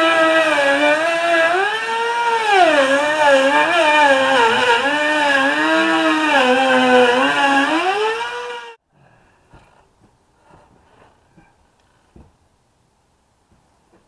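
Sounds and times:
router whining through wood: 0.0s - 8.8s.

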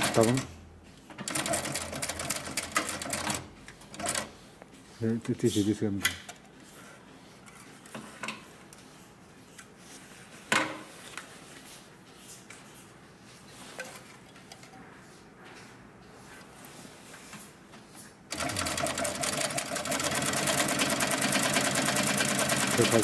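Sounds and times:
clicks and knocks of sewing machine: 1.1s - 4.3s, 18.3s - 23.0s.

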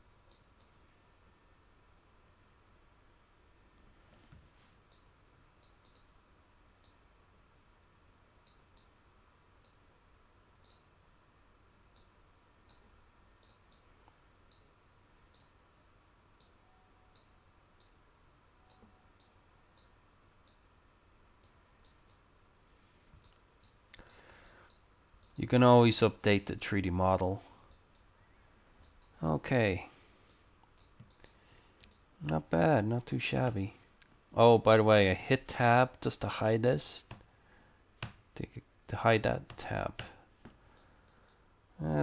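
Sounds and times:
faint computer mouse clicks: 4.8s - 6.1s, 8.4s - 8.9s, 9.6s - 9.8s, 10.6s - 10.9s, 11.9s - 12.1s, 12.7s - 14.7s, 15.3s - 15.6s, 23.1s - 25.4s, 30.3s - 32.1s, 39.5s - 41.4s.

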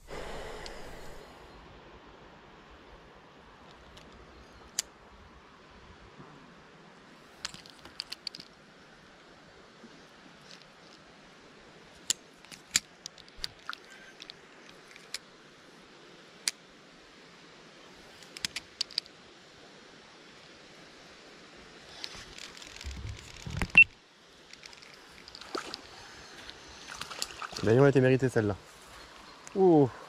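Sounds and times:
flowing water hiss: 0.0s - 30.0s
rustling: 21.9s - 28.0s.

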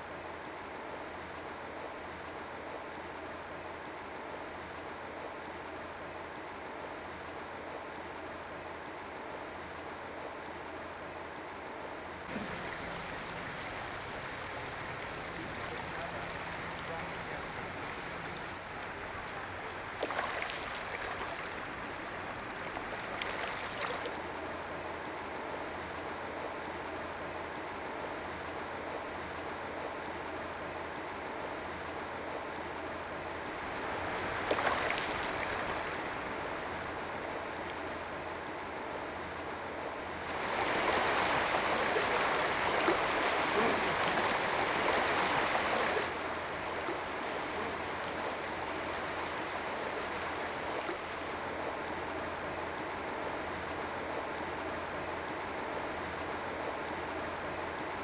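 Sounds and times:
fish splashing: 12.3s - 24.1s, 33.8s - 36.4s
stream running over stones: 12.3s - 24.3s, 33.6s - 38.1s, 40.2s - 51.3s.

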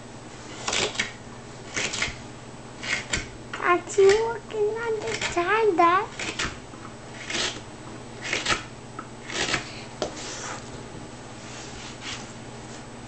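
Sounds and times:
knife scraping wood: 0.5s - 2.2s, 2.8s - 3.3s, 5.0s - 5.4s, 6.1s - 7.6s, 8.2s - 10.7s.

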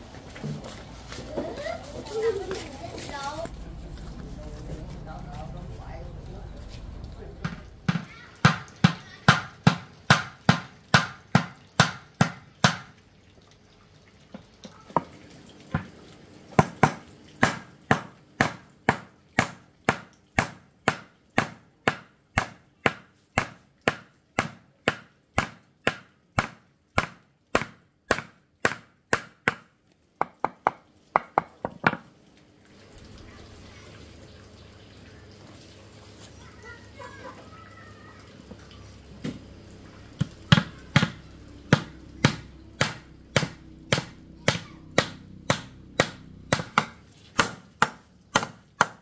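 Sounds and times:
chopping strikes: 40.2s - 49.0s.

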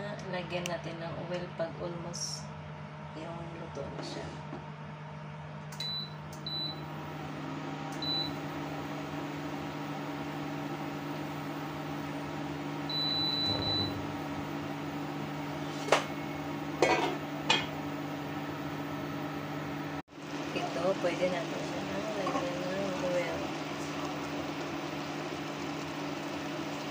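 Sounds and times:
appliance humming: 0.0s - 26.9s
short electronic beeps: 12.9s - 14.3s.

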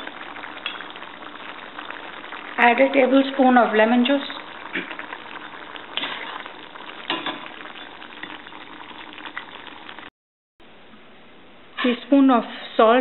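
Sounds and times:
curry bubbling in a pan: 0.0s - 10.1s.

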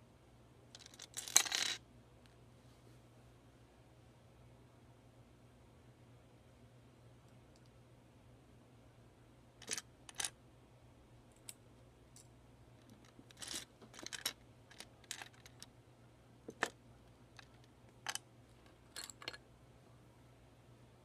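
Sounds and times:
plastic bricks clicking and clattering: 9.6s - 10.3s, 12.9s - 15.6s.

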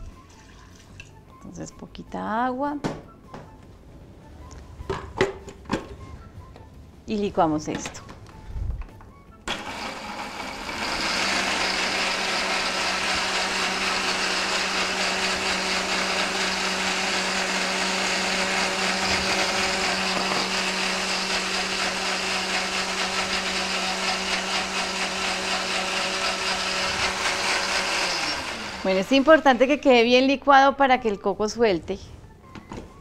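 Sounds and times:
blender running: 9.5s - 29.8s.

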